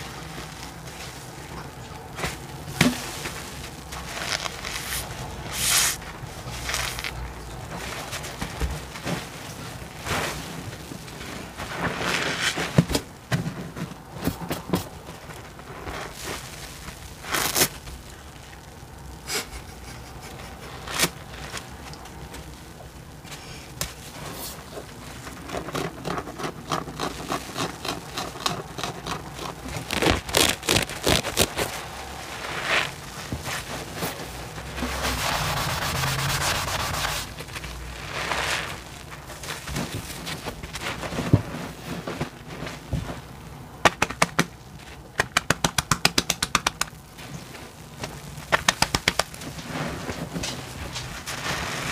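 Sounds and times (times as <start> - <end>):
sponge squelching: 0.0 - 12.8, 23.2 - 43.7
foam hiss: 0.0 - 12.9, 29.9 - 43.4, 46.5 - 51.9
foam crackling: 0.0 - 51.9.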